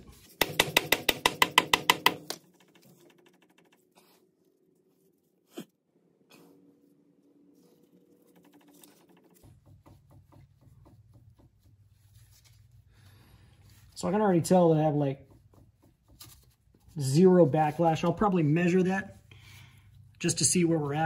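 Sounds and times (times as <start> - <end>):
sharp metal knocks: 0.4 - 3.5.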